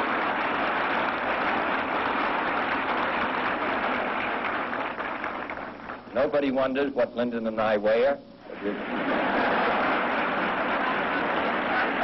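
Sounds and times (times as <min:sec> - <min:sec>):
audience applauding: 0:00.0 - 0:06.1, 0:08.6 - 0:12.0
audience laughing: 0:08.6 - 0:12.0.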